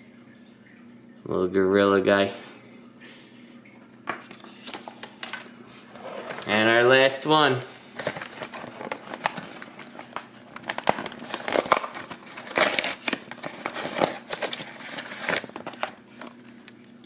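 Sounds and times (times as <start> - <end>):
cardboard and foil crinkling: 7.6 - 16.9.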